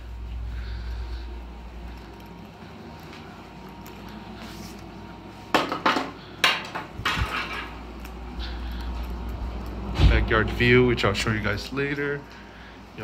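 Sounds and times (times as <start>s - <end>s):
low steady hum: 0.0s - 13.0s
hard objects clattering: 5.5s - 8.2s.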